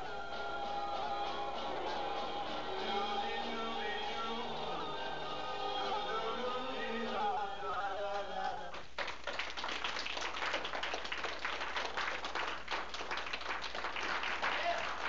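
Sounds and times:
audience clapping: 7.7 - 15.0.

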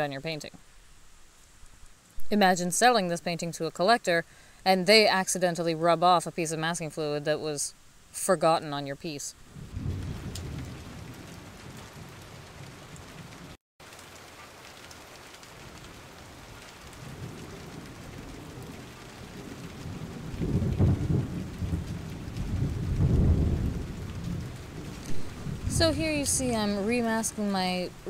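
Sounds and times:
rain hissing: 0.0 - 28.0
low rolling thunder: 9.5 - 13.6, 15.7 - 28.0.

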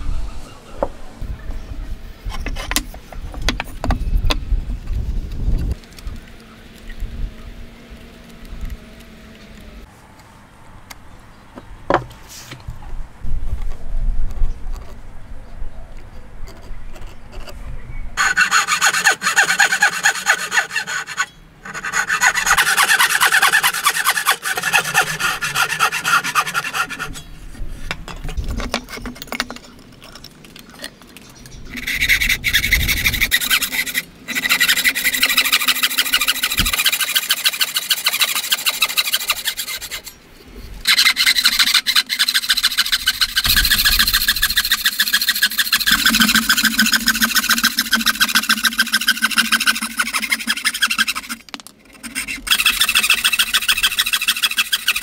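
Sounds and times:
hand saw cutting wood: 18.2 - 27.3, 31.8 - 40.2, 40.8 - 55.0.

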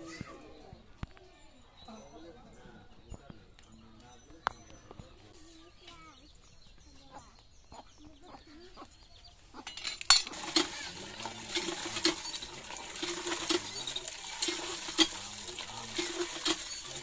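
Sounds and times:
hand pump handle clanking: 9.6 - 17.0
water gushing into metal pot: 9.7 - 17.0.

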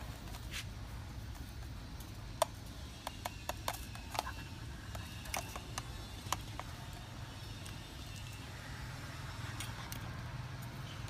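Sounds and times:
utensils clicking and tapping: 1.3 - 8.4.

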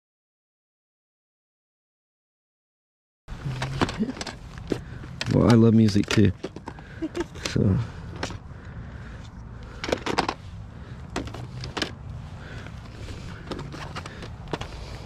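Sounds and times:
plastic cases clacking: 3.4 - 8.4, 9.6 - 10.4, 11.0 - 15.0.

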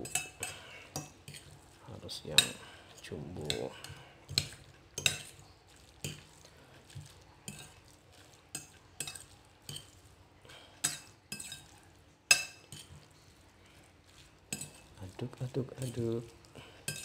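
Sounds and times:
fork scraping ceramic plate: 10.8 - 13.1, 14.5 - 14.9.

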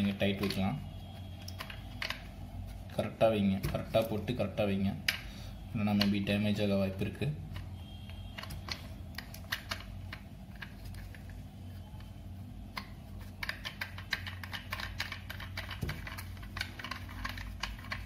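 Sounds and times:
steady low hum: 0.0 - 18.0
plastic parts clicking and rattling: 1.4 - 2.3, 7.5 - 11.4, 12.7 - 18.0.

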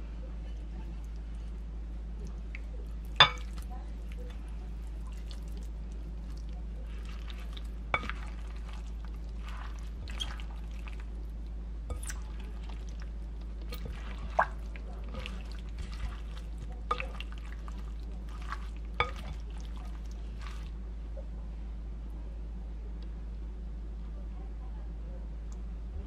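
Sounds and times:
steady low hum: 0.0 - 26.0
wet food squishing in a bowl: 0.4 - 21.2.

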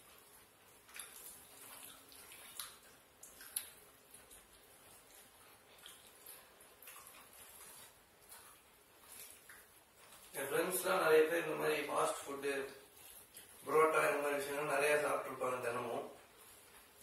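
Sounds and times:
fingers tearing and mixing food: 0.0 - 10.8, 12.8 - 14.8.

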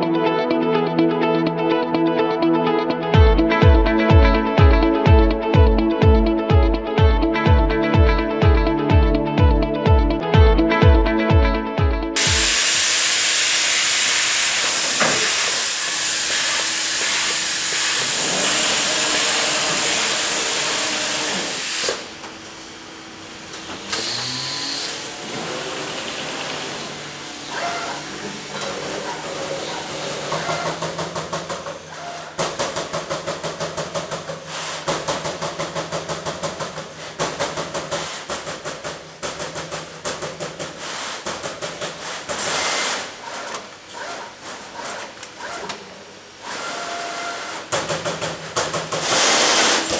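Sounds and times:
machine hum: 3.2 - 32.4
loud steady hiss: 12.2 - 18.2.

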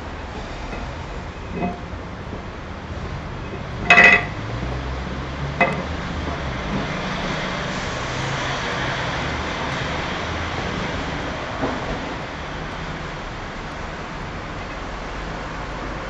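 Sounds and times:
low rumble and hiss: 0.0 - 16.0
metal ingot clanking: 0.7 - 1.9, 3.3 - 4.8, 5.5 - 6.1.

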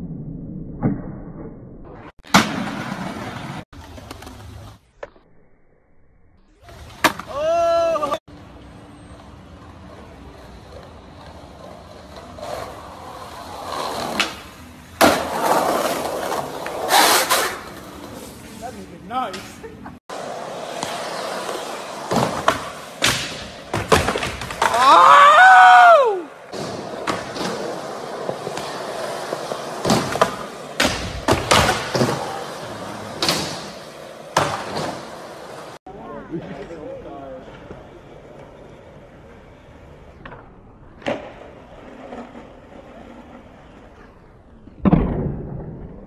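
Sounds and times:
skateboard wheels rolling on concrete: 1.4 - 5.2, 6.5 - 46.0
skateboard landing smack: 2.2 - 3.0, 22.1 - 24.9, 29.8 - 32.2, 44.8 - 46.0.

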